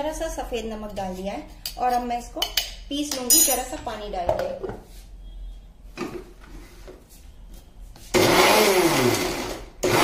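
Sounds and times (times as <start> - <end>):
mixer grinder motor grinding: 8.1 - 10.0.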